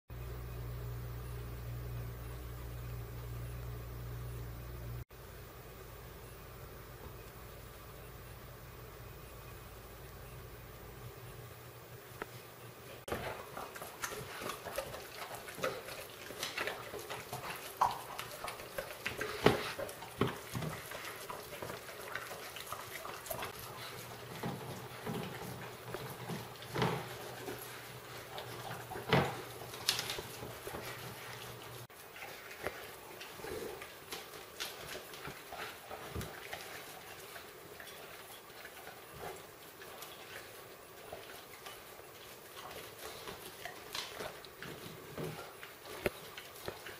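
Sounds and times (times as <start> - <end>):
dogs chewing wetly: 13.0 - 46.9.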